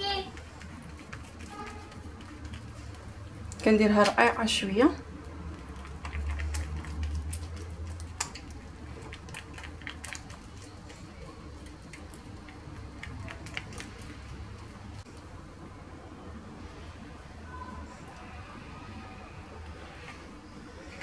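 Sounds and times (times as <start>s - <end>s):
fingers slapping dough: 0.0s - 4.2s, 5.2s - 15.0s.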